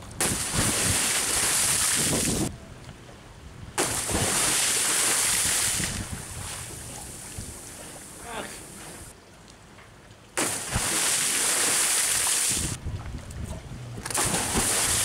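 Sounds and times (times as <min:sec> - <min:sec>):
bomb jump splash into sea: 0:00.2 - 0:02.5, 0:03.8 - 0:06.7, 0:10.4 - 0:12.8, 0:14.0 - 0:15.0.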